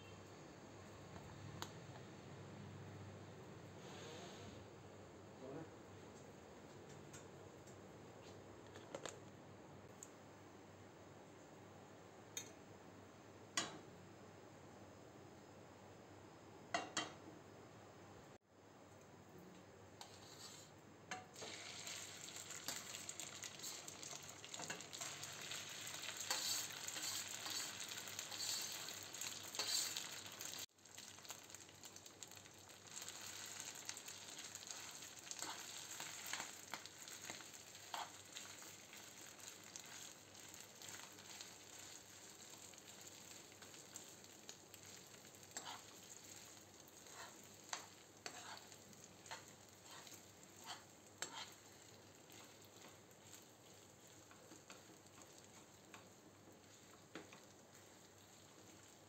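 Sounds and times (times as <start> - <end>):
potato sizzling in a pan: 19.9 - 59.0
steel spoon scraping a pan: 20.0 - 30.5, 34.7 - 38.6, 45.5 - 55.3.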